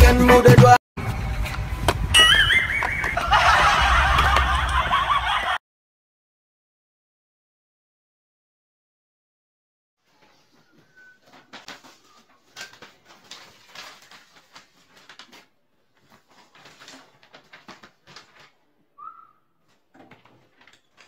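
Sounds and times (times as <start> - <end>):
brief high chirp: 2.1 - 3.2
paper rustling: 10.0 - 18.9, 19.6 - 21.0.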